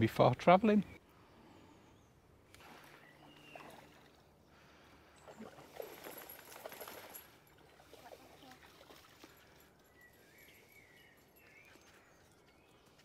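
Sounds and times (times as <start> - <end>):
dog splashing in water: 5.3 - 9.5.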